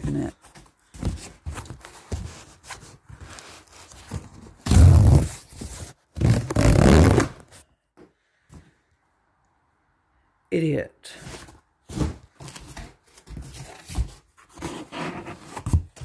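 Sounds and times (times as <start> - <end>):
cardboard handling rustles: 0.0 - 6.6, 11.2 - 16.0
cardboard ripping: 1.3 - 7.6.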